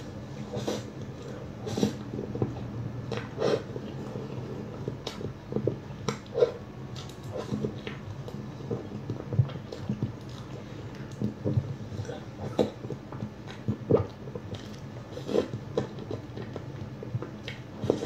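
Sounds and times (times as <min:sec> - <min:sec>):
person chewing food: 0:00.0 - 0:18.0.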